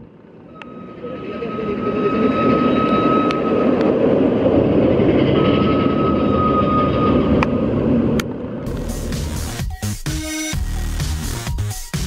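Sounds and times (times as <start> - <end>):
roller coaster rumbling on track: 0.0 - 9.6
thin high whine: 0.3 - 9.4.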